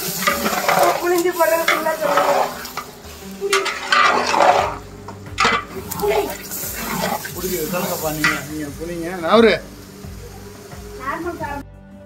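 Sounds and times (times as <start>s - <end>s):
spoon scraping a pot: 0.0s - 8.5s
food sizzling in a pot: 0.0s - 11.7s.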